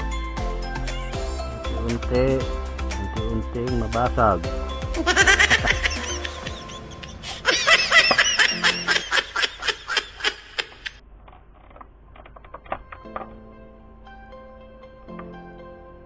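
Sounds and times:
person laughing: 5.0 - 11.0.

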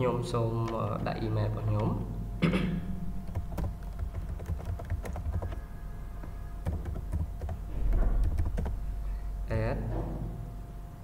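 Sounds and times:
typing on computer keyboard: 3.2 - 5.6, 6.2 - 8.8.

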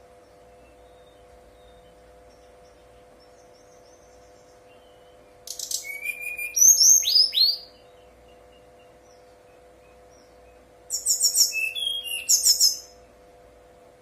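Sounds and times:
faint steady hum: 0.0 - 14.0
bird singing whistles: 4.7 - 8.9, 10.9 - 13.0.

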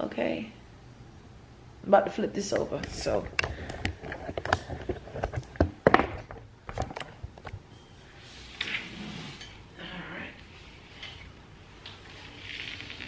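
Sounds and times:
knocks and thumps of handled object: 3.4 - 7.6.

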